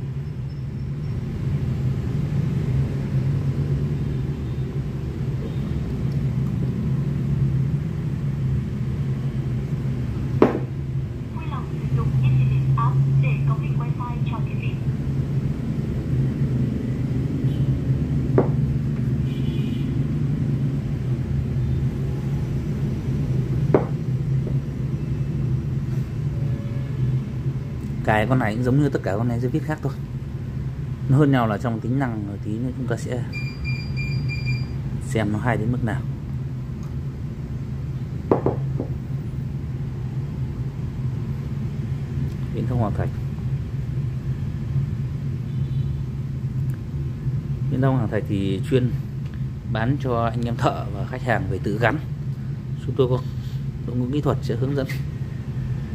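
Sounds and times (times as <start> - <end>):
low background rumble: 5.9 - 19.4.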